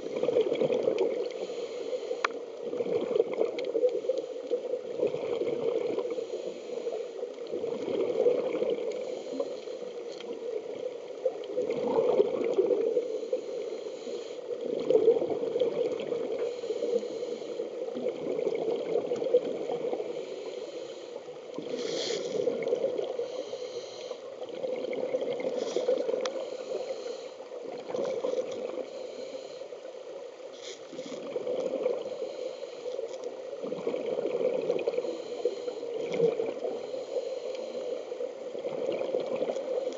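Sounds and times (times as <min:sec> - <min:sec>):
exhaled air bubbling: 0:00.0 - 0:01.4, 0:02.6 - 0:04.0, 0:04.8 - 0:06.1, 0:07.4 - 0:13.7, 0:14.5 - 0:20.2, 0:21.5 - 0:23.5, 0:24.2 - 0:29.1, 0:30.5 - 0:32.4, 0:33.3 - 0:37.2, 0:38.5 - 0:39.9
scuba breathing through regulator: 0:01.3 - 0:02.4, 0:13.0 - 0:14.5, 0:16.3 - 0:17.8, 0:19.9 - 0:24.3, 0:25.4 - 0:29.8, 0:30.5 - 0:31.3, 0:31.9 - 0:33.1, 0:34.8 - 0:38.2.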